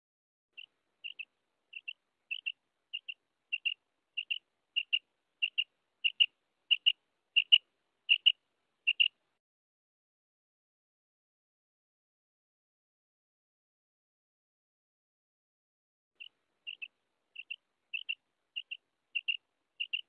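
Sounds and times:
quail calling: 0.6 - 9.2, 16.2 - 20.0.

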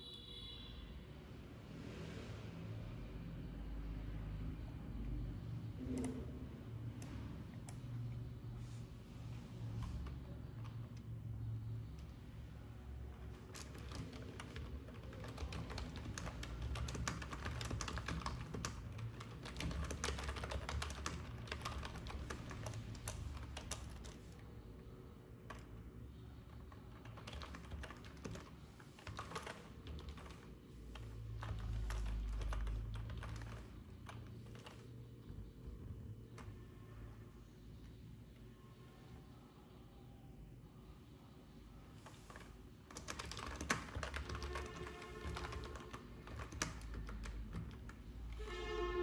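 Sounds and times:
keyboard typing: 4.6 - 8.3, 9.6 - 36.8, 42.0 - 48.6.

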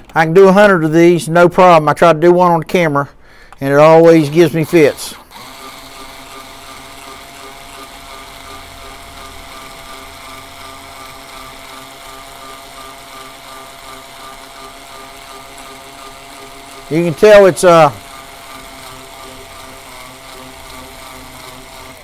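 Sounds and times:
cordless drill whining: 3.5 - 22.0.

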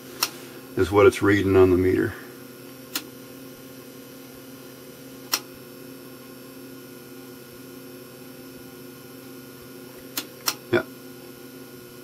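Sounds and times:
electrical mains hum: 0.0 - 12.0
sharp click: 5.3 - 5.5, 10.1 - 10.6.

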